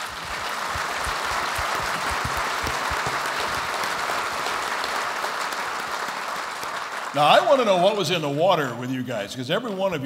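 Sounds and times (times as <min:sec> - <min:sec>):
audience applause: 0:00.0 - 0:08.0.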